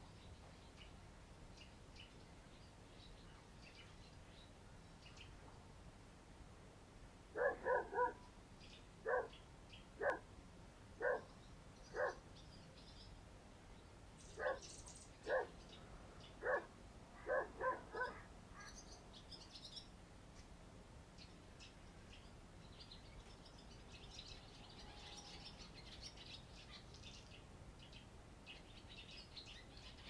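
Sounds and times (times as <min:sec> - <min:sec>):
dog barking: 0:07.4 - 0:08.2, 0:09.1 - 0:09.4, 0:10.0 - 0:10.2, 0:11.0 - 0:11.3, 0:11.9 - 0:12.2, 0:14.4 - 0:14.6, 0:15.3 - 0:15.5, 0:16.4 - 0:18.3
birds chirping faintly: 0:07.4 - 0:30.0.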